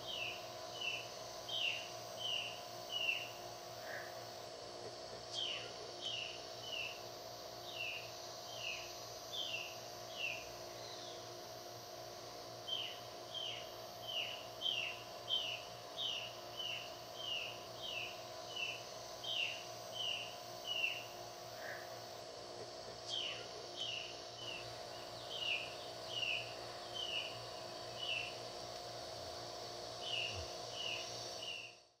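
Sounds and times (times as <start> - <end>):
steady hum: 0.0 - 32.0.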